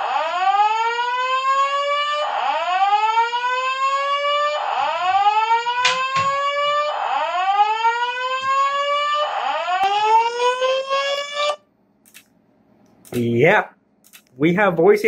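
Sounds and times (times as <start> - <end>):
whoop evacuation alarm tone: 0.0 - 11.6.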